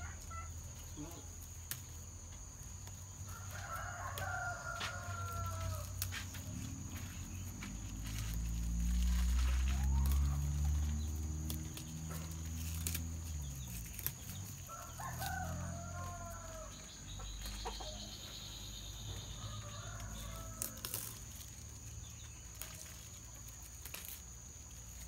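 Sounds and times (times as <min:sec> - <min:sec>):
rooster crowing: 0:03.2 - 0:06.3, 0:09.4 - 0:11.0, 0:14.5 - 0:18.2, 0:18.8 - 0:21.2.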